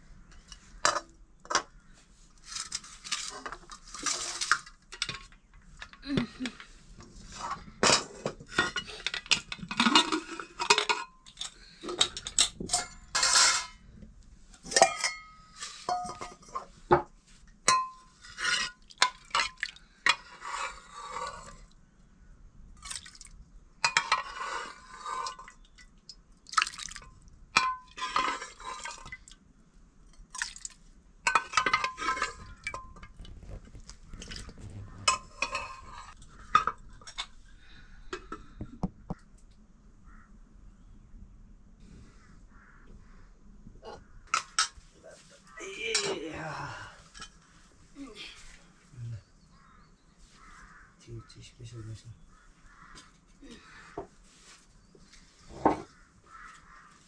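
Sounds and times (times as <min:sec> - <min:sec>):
metal dishes clinking and scraping: 0:00.3 - 0:01.7, 0:02.5 - 0:06.7, 0:07.3 - 0:13.9, 0:14.6 - 0:17.1, 0:17.7 - 0:21.6, 0:23.8 - 0:25.8, 0:27.6 - 0:29.4, 0:31.3 - 0:33.3, 0:34.1 - 0:37.4, 0:43.9 - 0:44.8, 0:55.5 - 0:55.9.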